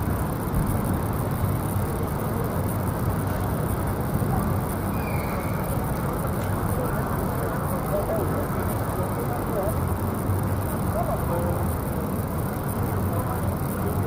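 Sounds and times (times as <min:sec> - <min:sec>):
distant road traffic rumble: 0:00.0 - 0:14.0
faint high squeak: 0:04.9 - 0:05.7.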